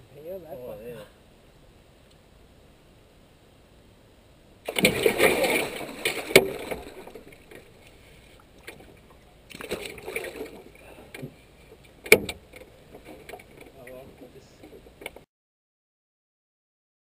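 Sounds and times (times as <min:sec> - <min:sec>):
fish thrashing and splashing: 0:04.7 - 0:11.2
sharp knocks: 0:12.0 - 0:12.6.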